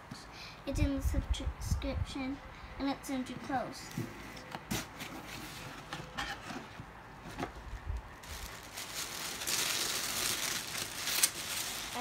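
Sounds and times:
paper rustling and crinkling: 4.7 - 12.0.

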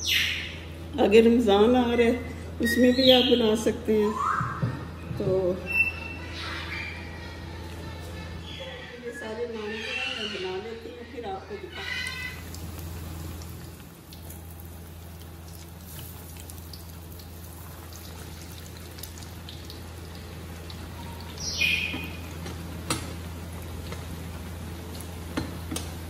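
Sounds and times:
bread deep-frying in oil: 11.8 - 26.0.

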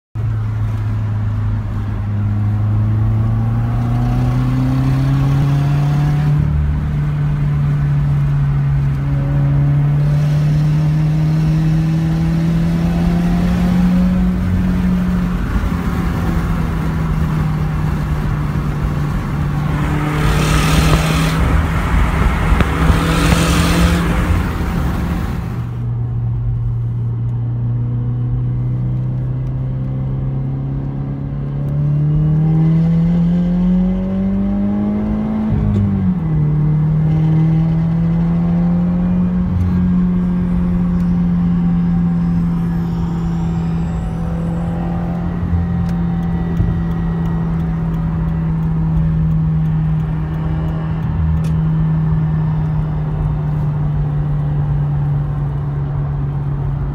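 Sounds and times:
car engine accelerating: 0.2 - 56.9
exhaust rattle or buzz: 14.4 - 26.0.

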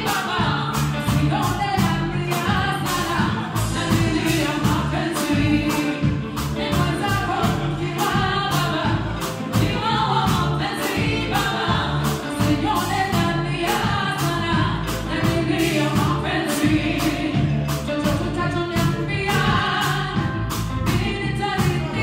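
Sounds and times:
live band playing: 0.0 - 22.0
people singing together: 0.0 - 22.0
steady drum beat: 0.0 - 22.0.

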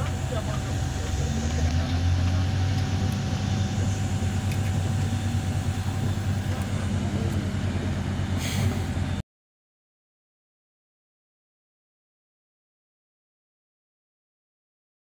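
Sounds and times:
diesel machinery engine rumble: 0.0 - 9.2
short hiss: 8.4 - 8.9.

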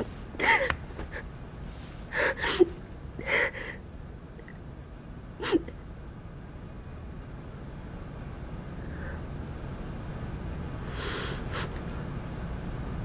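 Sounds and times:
woman sobbing: 0.4 - 1.3, 2.1 - 3.8.

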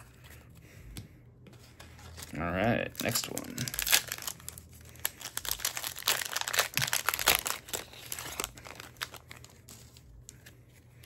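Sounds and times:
wrapper tearing and crinkling: 2.2 - 10.2.

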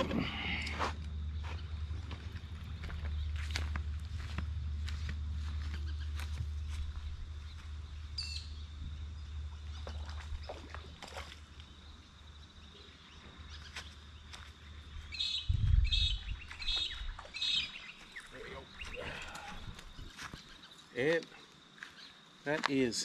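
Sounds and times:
steady low rumble: 0.0 - 12.4, 14.1 - 17.2
bird chirping: 5.4 - 10.9, 11.6 - 22.2.

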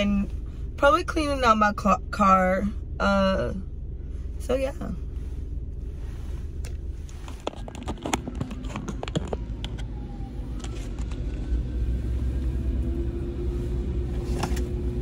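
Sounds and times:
car rumble: 0.0 - 15.0
sharp clicks and knocks: 7.3 - 10.0.

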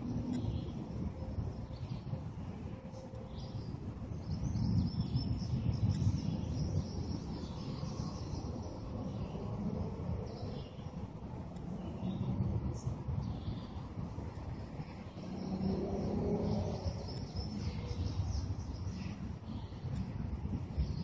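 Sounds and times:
birds chirping faintly: 0.0 - 21.0.

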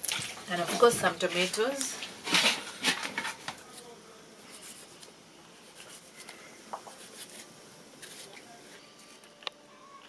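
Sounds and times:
plastic basins clattering: 0.0 - 3.6.

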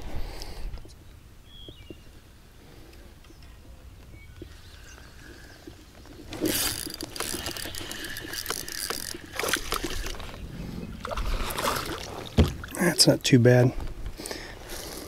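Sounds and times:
fishing reel clicking clatter: 6.3 - 10.3.

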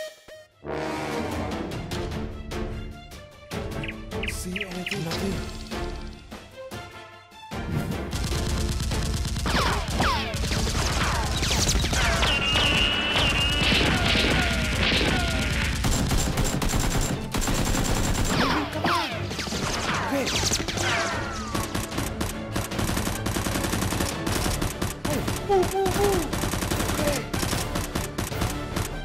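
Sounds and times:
automatic gunfire: 8.2 - 18.6, 21.4 - 28.6.

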